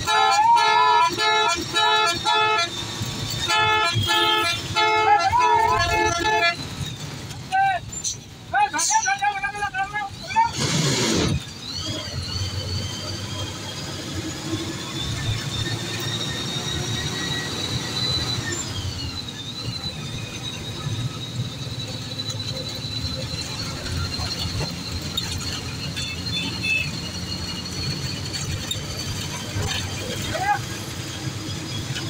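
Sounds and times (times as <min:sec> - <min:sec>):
bus engine and road rumble: 0:00.0 - 0:32.0
high-pitched whine: 0:11.1 - 0:30.6.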